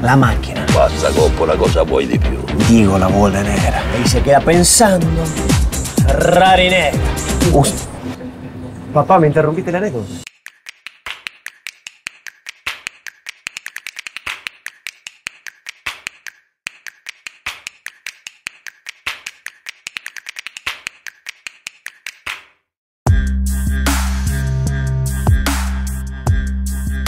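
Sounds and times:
electronic music with heavy bass: 0.4s - 8.0s, 23.1s - 27.0s
typing clicks: 10.3s - 22.4s.

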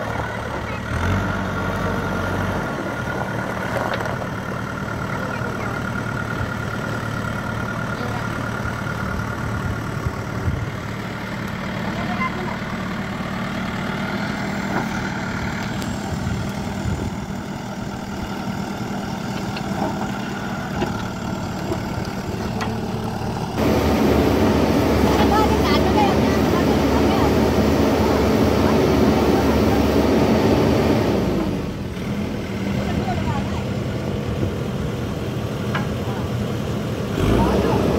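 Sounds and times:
diesel engine running at low revs: 0.0s - 37.9s.

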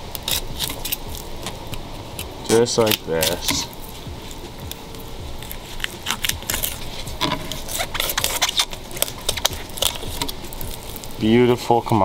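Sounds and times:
knife scraping over fish bones: 0.1s - 11.2s.

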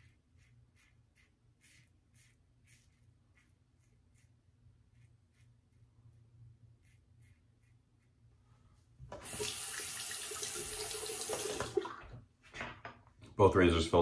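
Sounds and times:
razor scraping stubble: 0.0s - 8.2s
tap running into sink: 9.1s - 11.8s.

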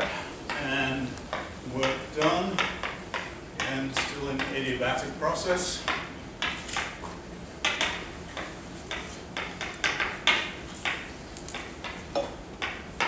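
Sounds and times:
chalk tapping and scratching: 5.8s - 12.0s.

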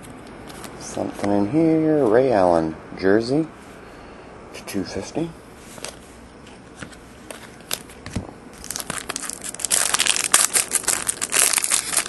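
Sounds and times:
foil wrapper crinkling: 7.2s - 12.0s.

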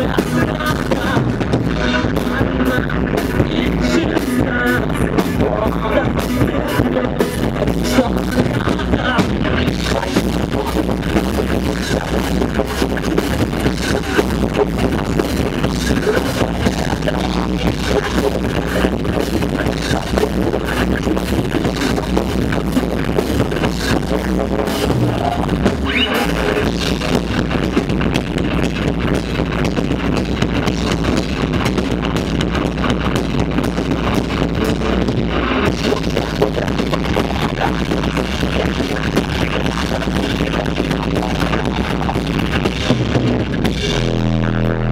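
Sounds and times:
pounding drums: 0.0s - 44.7s
live metal band playing: 0.0s - 44.9s
person singing into microphone: 0.0s - 44.9s.

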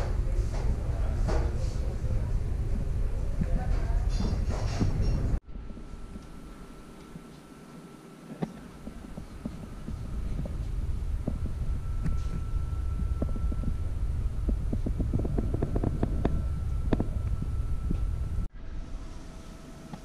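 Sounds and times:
faint high hum: 0.0s - 20.0s
camera handling rumble: 14.4s - 17.4s.

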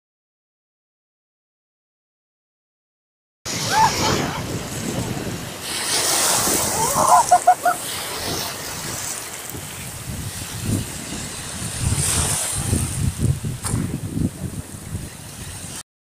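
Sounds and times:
small waves breaking on shore: 3.5s - 15.8s.

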